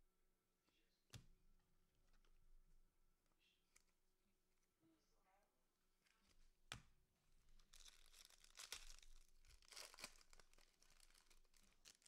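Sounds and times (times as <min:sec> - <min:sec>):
foil wrapper tearing and crinkling: 0:07.6 - 0:12.0.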